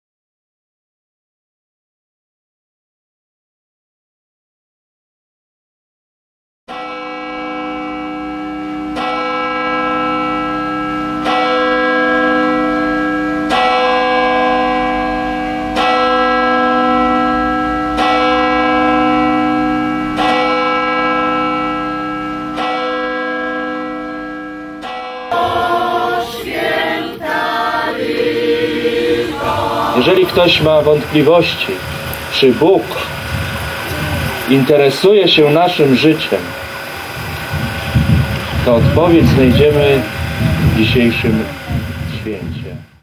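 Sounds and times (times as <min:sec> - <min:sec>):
church bell tolling: 0:06.7 - 0:42.9
choir singing: 0:25.2 - 0:31.8.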